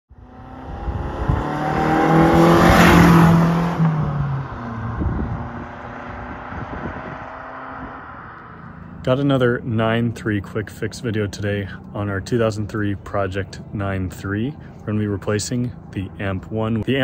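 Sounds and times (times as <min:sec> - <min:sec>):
car driving past: 0:00.1 - 0:09.1.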